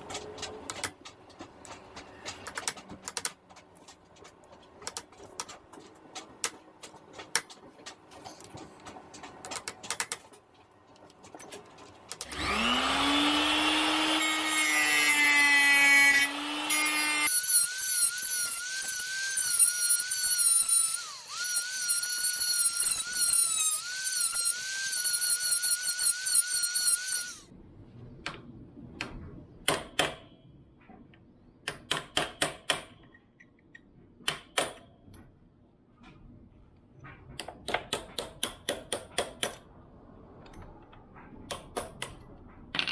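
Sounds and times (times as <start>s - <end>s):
angle grinder cutting metal: 12.2s - 27.5s.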